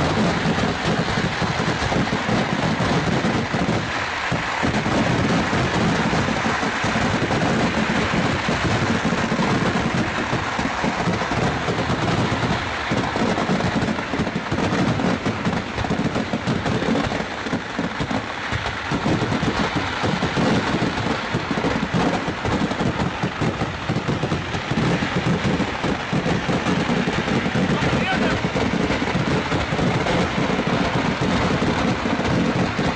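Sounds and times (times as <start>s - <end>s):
fireworks barrage crackling: 0.0s - 32.9s.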